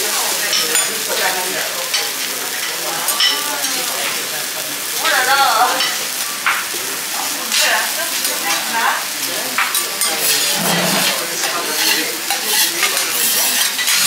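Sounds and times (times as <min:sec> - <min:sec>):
food sizzling on a griddle: 0:00.0 - 0:14.0
metal spatulas scraping and clacking: 0:10.0 - 0:14.0.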